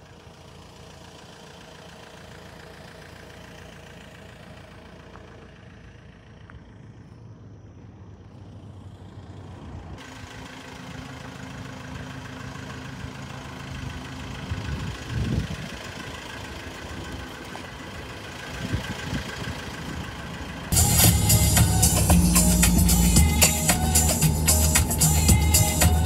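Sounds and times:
pickup truck engine idling: 0.0s - 26.0s.

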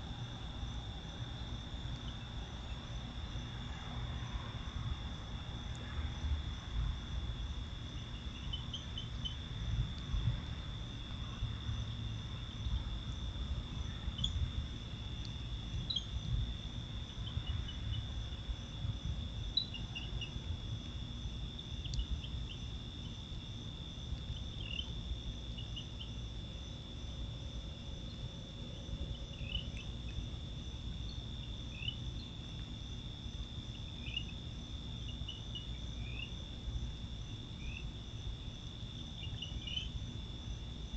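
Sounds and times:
crickets trilling: 0.0s - 40.9s
short insect chirps: 39.2s - 40.0s.

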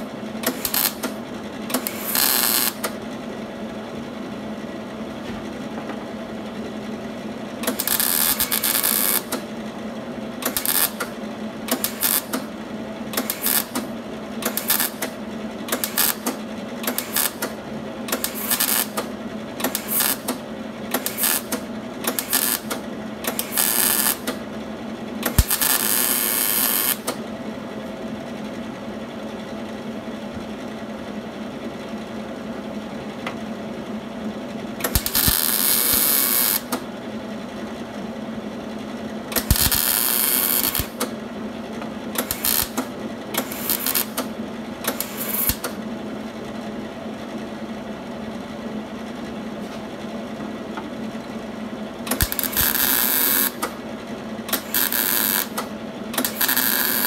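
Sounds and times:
welder tack welding bursts: 0.4s - 1.2s, 1.8s - 2.8s, 7.6s - 9.4s, 10.5s - 11.1s, 11.7s - 12.4s, 13.2s - 13.9s, 14.5s - 15.1s, 15.8s - 16.3s, 16.9s - 17.5s, 18.2s - 19.0s, 19.6s - 20.4s, 21.0s - 22.7s, 23.3s - 24.4s, 25.3s - 27.1s, 34.9s - 36.7s, 39.4s - 41.0s, 42.2s - 44.2s, 44.9s - 45.6s, 52.1s - 53.6s, 54.5s - 55.6s, 56.2s - 57.0s.

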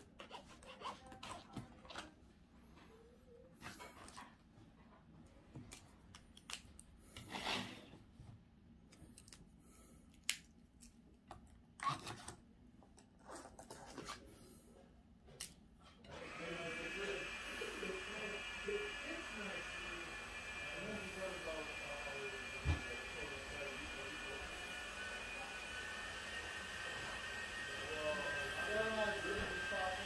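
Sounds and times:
book and pen rustling: 0.0s - 2.2s, 11.8s - 14.6s.

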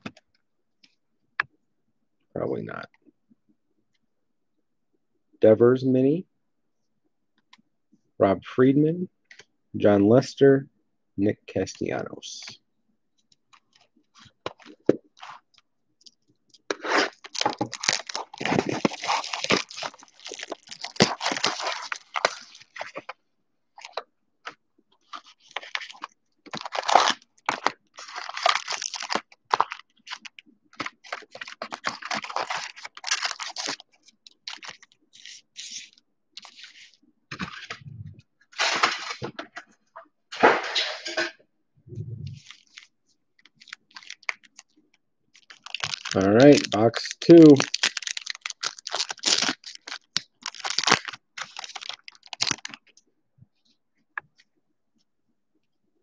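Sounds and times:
foil wrappers crinkling: 16.7s - 23.1s, 23.8s - 37.7s, 42.4s - 53.0s.

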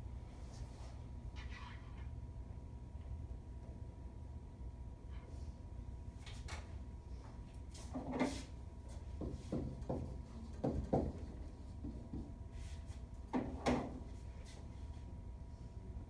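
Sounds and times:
faint steady hum: 0.0s - 16.0s
chair scraping and shuffling: 7.8s - 8.6s.

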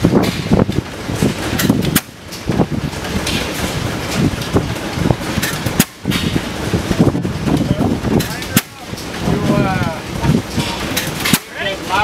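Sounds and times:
hay baler machinery clattering: 0.0s - 12.0s.

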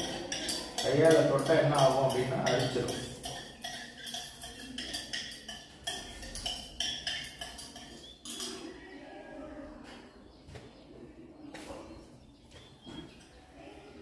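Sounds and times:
stirrer clinking in glass beaker: 0.0s - 8.6s.

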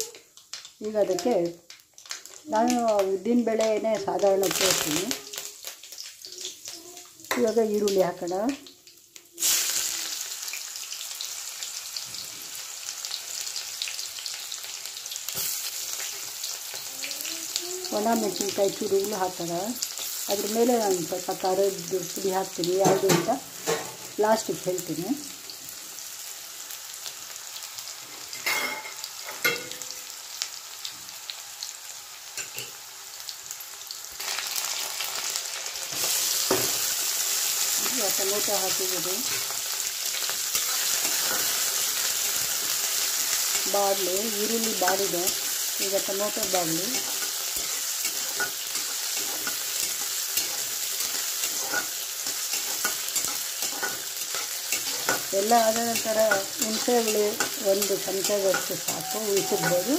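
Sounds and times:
food sizzling in hot oil: 0.0s - 59.9s
metal spatula scraping pan: 46.9s - 59.9s.

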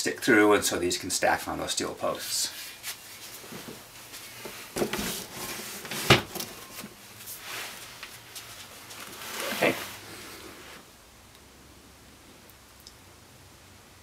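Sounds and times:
rustling and shuffling: 2.0s - 10.9s.

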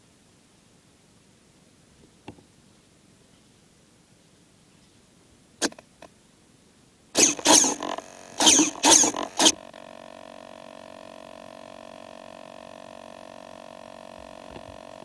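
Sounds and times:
electric motor revving in blips: 7.2s - 15.0s.

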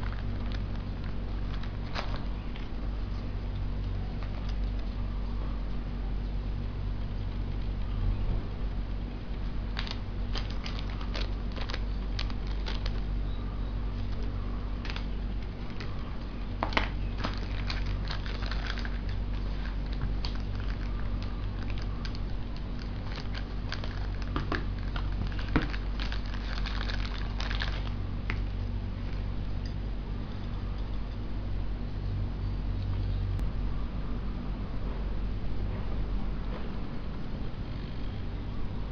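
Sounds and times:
plastic bags crinkling: 0.0s - 3.3s, 9.4s - 13.2s, 13.9s - 29.2s
low hum: 0.0s - 38.9s.

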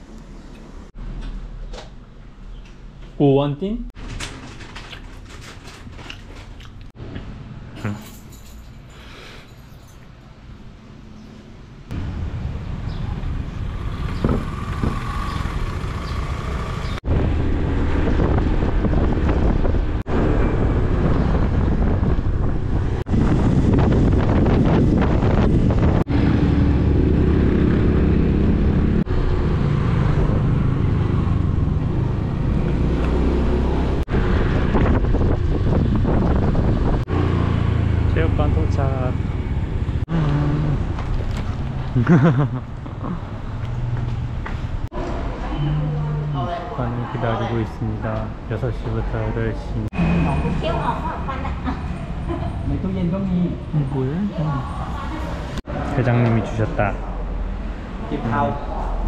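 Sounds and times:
wind buffeting microphone: 12.9s - 15.2s, 17.0s - 29.0s, 33.7s - 38.0s.

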